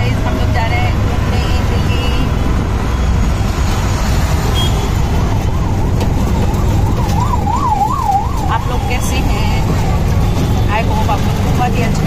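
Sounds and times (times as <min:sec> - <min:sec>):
auto-rickshaw engine rumble: 0:00.0 - 0:12.0
siren rising and falling: 0:02.8 - 0:09.6.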